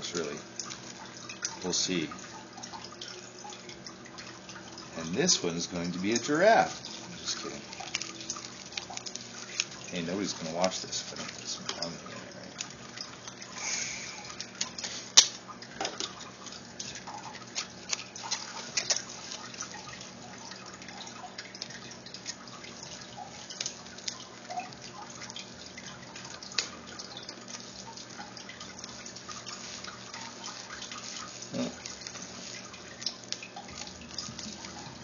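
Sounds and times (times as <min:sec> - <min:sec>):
bubble wrap and straws crinkling: 0:06.3 - 0:11.8, 0:17.5 - 0:19.8, 0:28.8 - 0:34.8.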